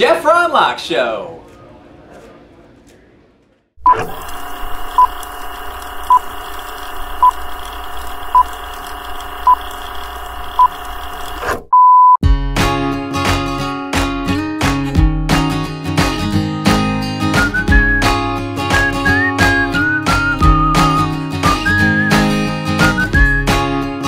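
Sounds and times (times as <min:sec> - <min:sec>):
short high beeps: 0:11.7 - 0:12.2
acoustic guitar strumming: 0:12.2 - 0:24.0.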